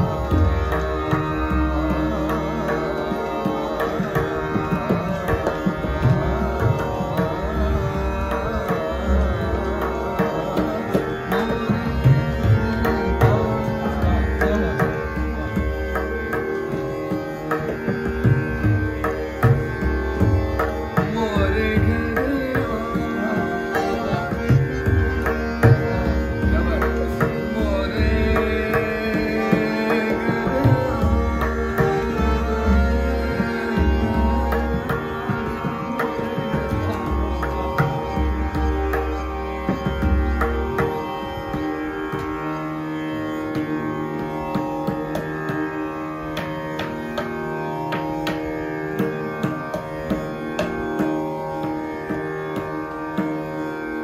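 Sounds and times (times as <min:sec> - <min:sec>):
man singing: 0:00.0 - 0:17.2, 0:19.0 - 0:45.7
tabla strokes: 0:00.0 - 0:42.4
harmonium melody: 0:00.0 - 0:54.0.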